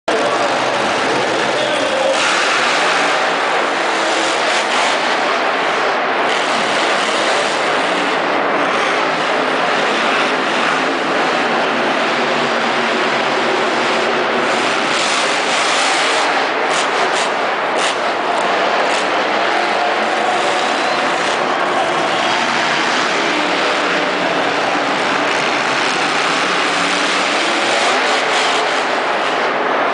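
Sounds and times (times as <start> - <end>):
monster truck engines running: 0.0 - 29.9.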